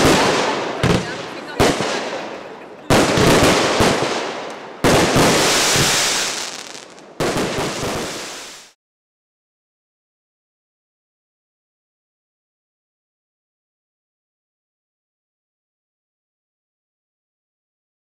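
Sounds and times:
fireworks bursting and crackling: 0.0 - 8.8.

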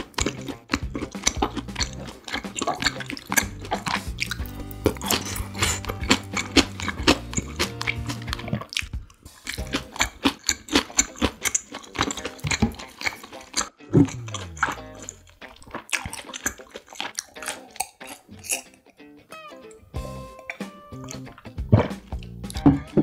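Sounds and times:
person chewing food: 0.0 - 18.8, 20.4 - 23.0
low hum: 14.0 - 15.2.

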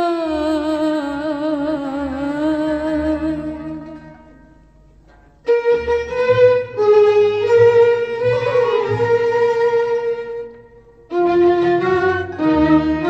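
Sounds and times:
low string notes: 0.0 - 13.0
violin section playing melody: 5.5 - 13.0.

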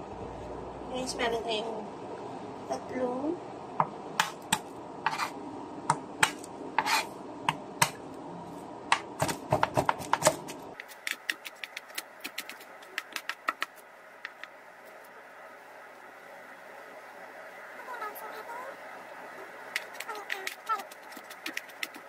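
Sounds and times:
knife chopping on wooden board: 5.9 - 7.0, 8.9 - 13.7.

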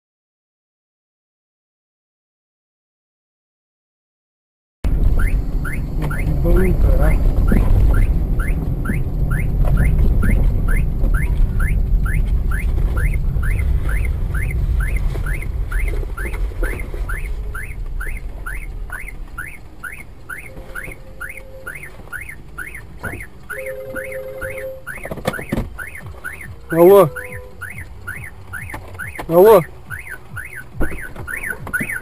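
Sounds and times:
car engine and tyres rumbling: 4.8 - 32.0
short rising chirps: 4.9 - 25.1
short steady tones: 4.9 - 32.0.

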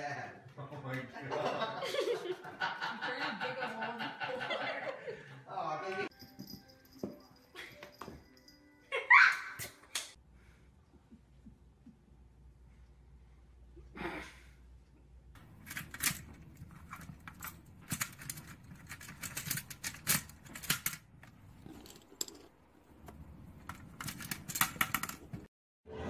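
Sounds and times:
plastic discs clicking and clattering: 15.4 - 22.4, 23.0 - 25.5.

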